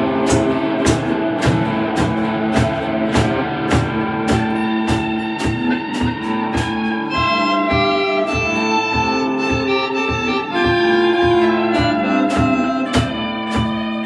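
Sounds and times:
drum kit beat: 0:00.0 - 0:14.0
electric guitars: 0:00.0 - 0:14.0
held organ-like notes: 0:00.0 - 0:14.0.

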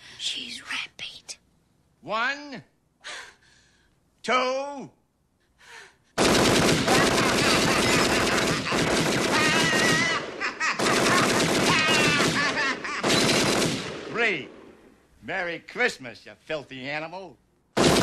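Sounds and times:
submachine gun firing in bursts: 0:06.2 - 0:14.1, 0:17.8 - 0:18.0
person yelling: 0:09.3 - 0:10.2, 0:11.6 - 0:12.4.

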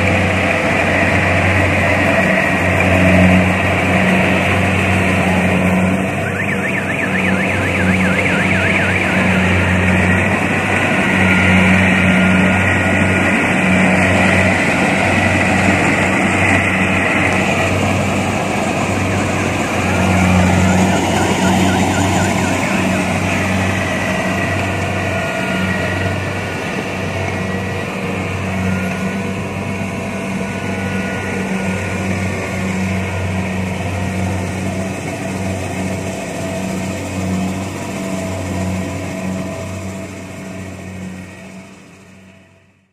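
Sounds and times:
harvester diesel engine running: 0:00.0 - 0:42.9
faint warbling tone: 0:05.5 - 0:12.6, 0:19.0 - 0:24.4.

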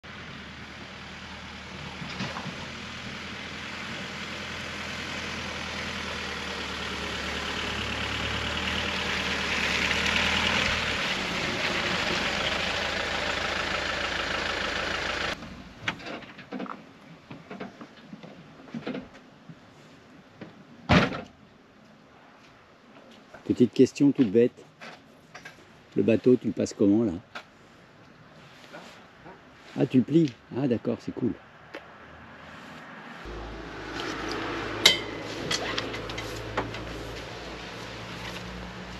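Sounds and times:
van engine running: 0:00.0 - 0:15.8, 0:33.3 - 0:38.9.

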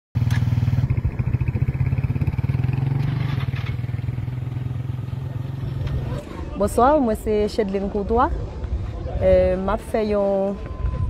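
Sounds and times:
small motorcycle engine running: 0:00.2 - 0:06.0.

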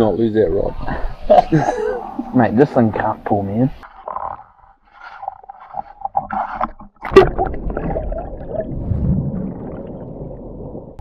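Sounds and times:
muffled underwater water rush: 0:05.6 - 0:11.0.

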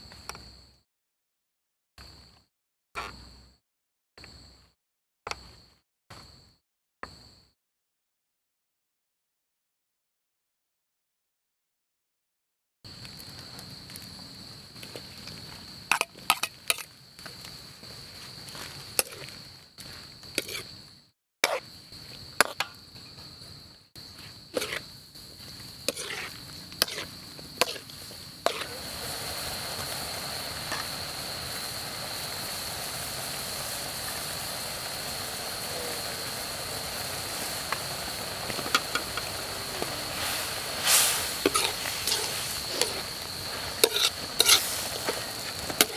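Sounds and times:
sizzling and bubbling: 0:12.9 - 0:20.8, 0:21.4 - 0:45.9.

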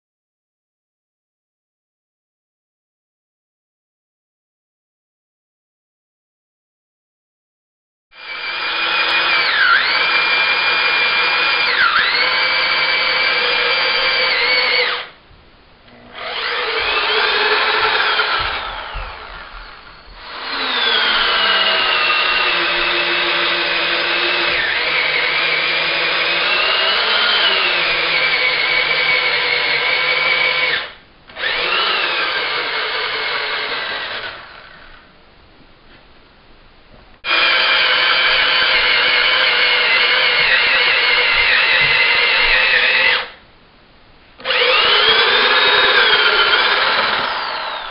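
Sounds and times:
electric drill boring into wood: 0:08.2 - 0:15.1, 0:16.1 - 0:35.1, 0:37.2 - 0:43.4, 0:44.4 - 0:47.9.

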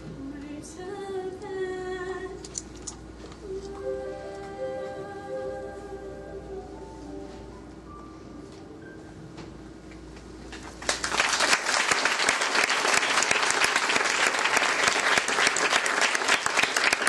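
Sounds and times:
audience applause: 0:10.6 - 0:17.0.

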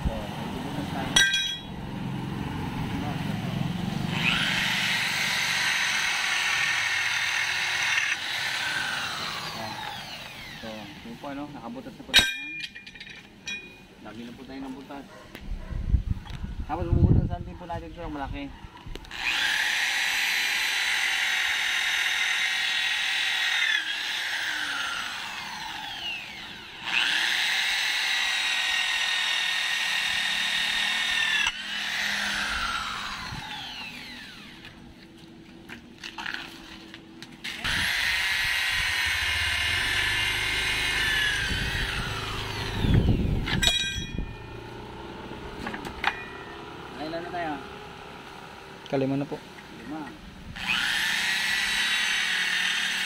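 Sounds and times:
electric drill whining: 0:04.1 - 0:11.5, 0:19.0 - 0:35.1, 0:37.4 - 0:44.9, 0:50.5 - 0:53.0.

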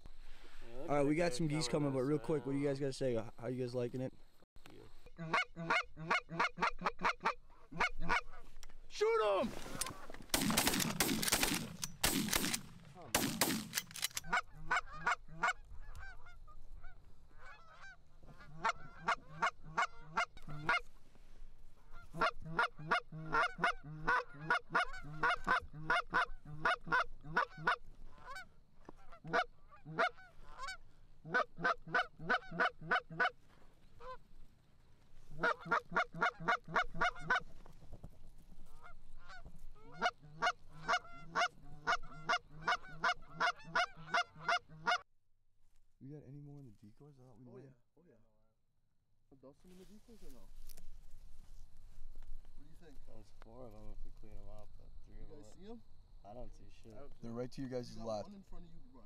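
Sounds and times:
geese honking: 0:05.0 - 0:08.6, 0:14.2 - 0:21.0, 0:21.8 - 0:34.3, 0:35.2 - 0:37.7, 0:38.6 - 0:45.0
shotgun shots: 0:10.3 - 0:14.2.

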